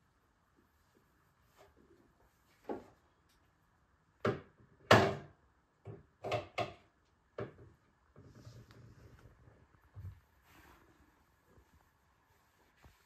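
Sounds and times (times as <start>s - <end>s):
objects knocking on a shelf: 4.2s - 6.8s
faint rustling: 8.1s - 13.0s.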